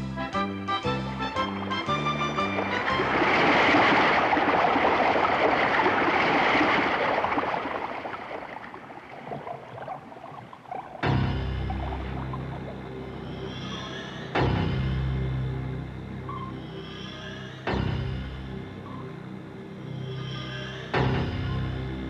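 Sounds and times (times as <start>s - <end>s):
low ominous music chord: 0.0s - 3.7s, 11.0s - 22.0s
underwater rushing bubbling water: 1.6s - 13.8s.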